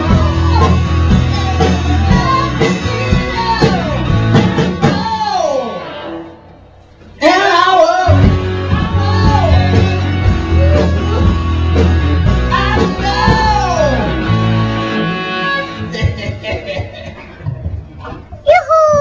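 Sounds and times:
person singing: 0:00.0 - 0:06.0, 0:07.2 - 0:14.4
rock music with heavy bass: 0:00.0 - 0:06.5, 0:07.6 - 0:16.4.

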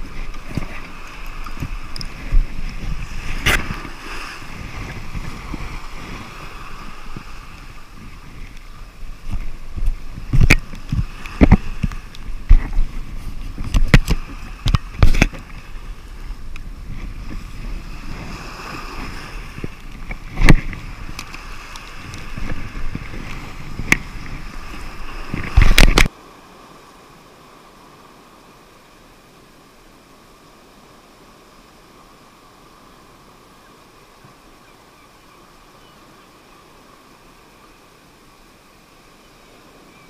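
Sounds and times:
wind rumbling on microphone: 0:00.0 - 0:28.6
sea rushing on rocks: 0:00.0 - 0:40.0.

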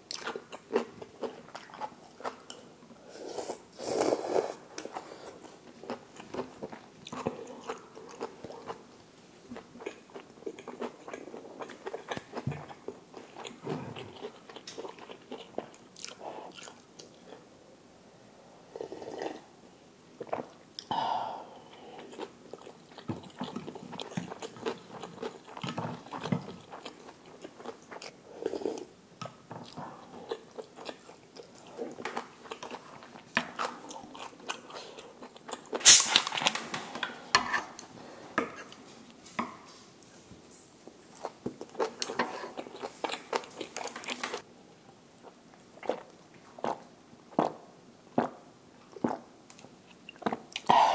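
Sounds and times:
person chewing crunchy food: 0:03.4 - 0:08.8, 0:09.6 - 0:17.4, 0:21.6 - 0:28.9, 0:29.6 - 0:36.5, 0:41.1 - 0:44.4.

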